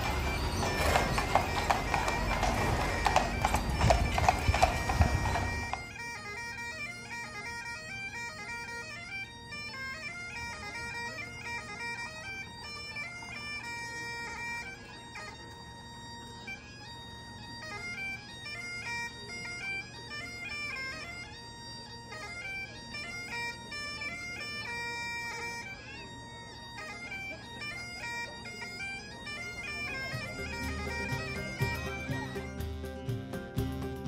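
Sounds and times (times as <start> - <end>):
horses' hooves clip-clopping: 0.0 - 5.9, 30.0 - 34.0
bagpipe music: 0.0 - 34.0
street noise: 0.0 - 34.0.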